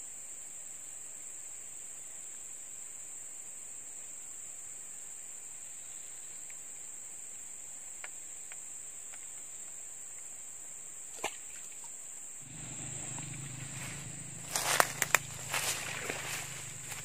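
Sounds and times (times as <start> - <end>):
insects droning in grass: 0.0 - 17.0
low rustling rumble: 12.4 - 17.0
faint ticks: 12.5 - 17.0.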